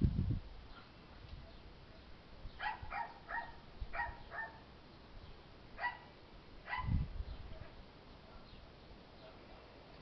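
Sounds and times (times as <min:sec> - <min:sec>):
dog yapping: 0:02.6 - 0:04.6, 0:05.8 - 0:06.1, 0:06.7 - 0:06.9.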